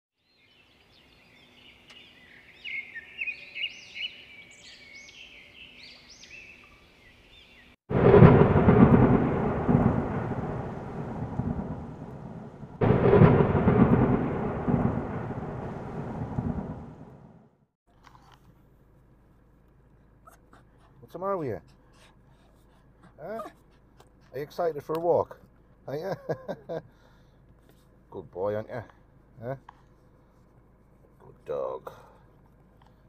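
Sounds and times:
loud thunder-like rumbles: 7.9s - 17.6s.

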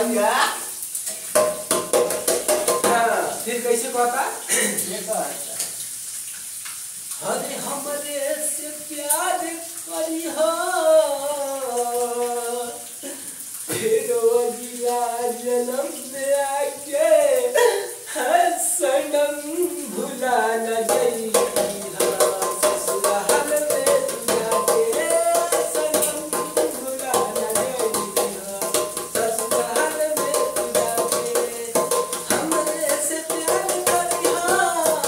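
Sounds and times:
hands drumming on metal lid: 1.3s - 3.1s, 20.9s - 35.0s
man singing: 7.2s - 12.9s, 13.7s - 35.0s.

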